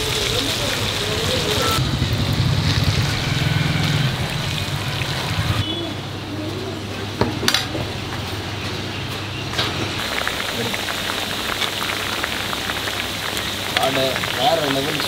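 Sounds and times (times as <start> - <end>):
deep-frying oil sizzling: 0.0 - 6.0, 7.0 - 15.0
low rumble: 1.8 - 5.6.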